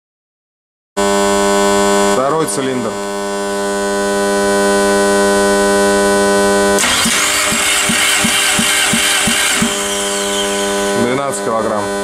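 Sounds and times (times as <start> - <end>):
electrical hum: 1.0 - 12.0
engine cranking over: 6.8 - 11.5.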